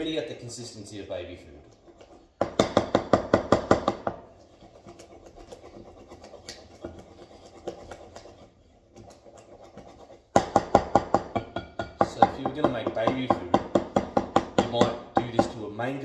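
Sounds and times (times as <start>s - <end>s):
scraping and stirring in bowl: 0.0s - 15.7s
utensil knocking against bowl: 10.3s - 15.6s.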